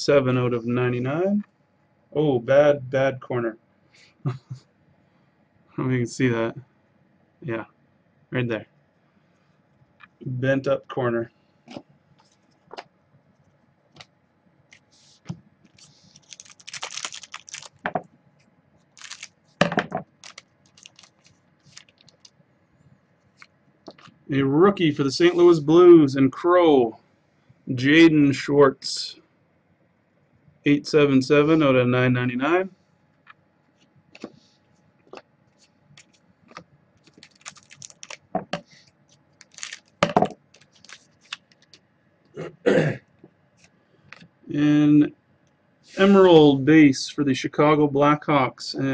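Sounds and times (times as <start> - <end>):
foil pack tearing and crinkling: 15.7 - 17.8, 19.0 - 19.4, 20.1 - 22.3, 37.0 - 38.2, 39.4 - 41.7
cards clicking and rustling: 15.7 - 17.9, 19.0 - 19.3, 20.0 - 22.3, 36.0 - 38.6, 39.4 - 41.8.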